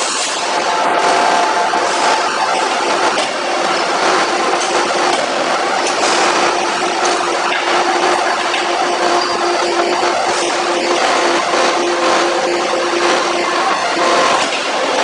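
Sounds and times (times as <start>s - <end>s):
machinery humming: 0.0s - 15.0s.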